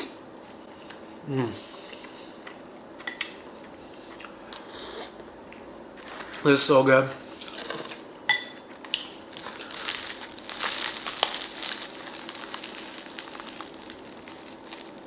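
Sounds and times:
bread crust crackling: 8.9 - 15.0.

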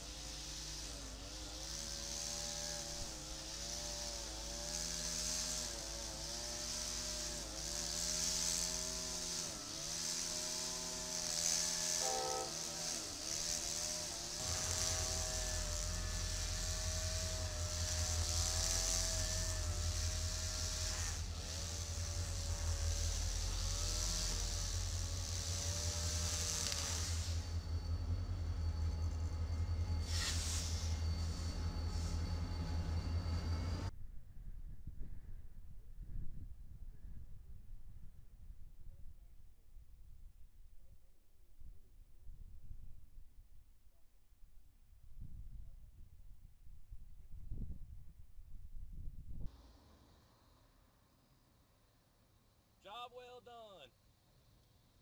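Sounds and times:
diesel locomotive engine hum: 0.0 - 33.9.

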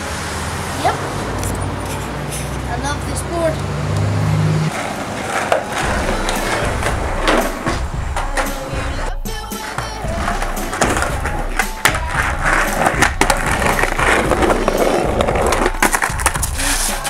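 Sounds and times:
skateboard wheels rolling on concrete: 0.0 - 17.0
skateboard knocks: 9.8 - 16.5.

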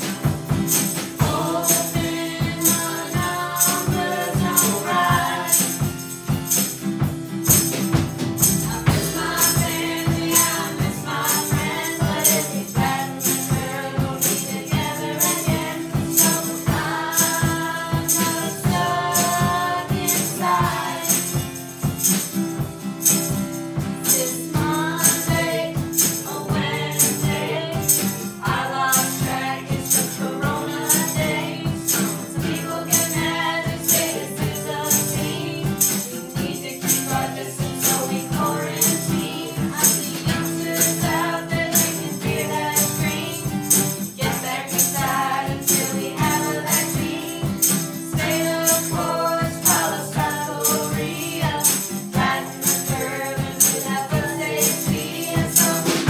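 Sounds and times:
high percussive beat: 0.0 - 56.0
people singing together: 0.0 - 56.0
strummed acoustic guitar: 0.0 - 56.0.

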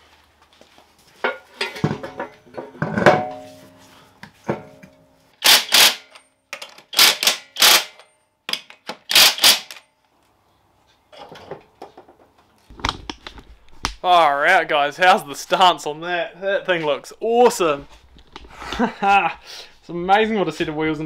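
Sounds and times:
impact wrench hammering: 5.4 - 6.2, 6.9 - 9.8.

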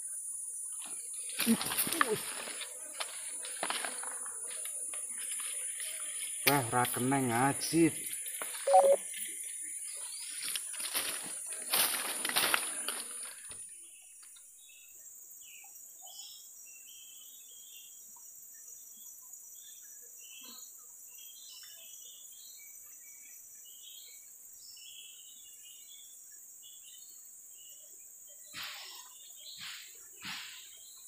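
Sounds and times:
high insect drone: 0.0 - 31.0
bird chirps: 8.2 - 9.2.

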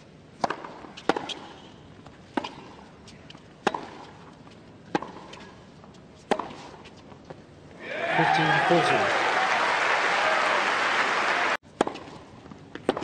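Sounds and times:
tennis ball hit by rackets: 0.3 - 1.6, 2.3 - 4.2, 4.9 - 5.5, 6.2 - 6.8, 11.7 - 13.0.

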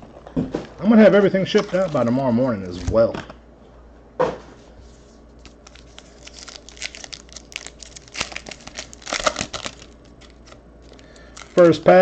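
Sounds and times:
foil wrapper crinkling and tearing: 5.4 - 12.0.

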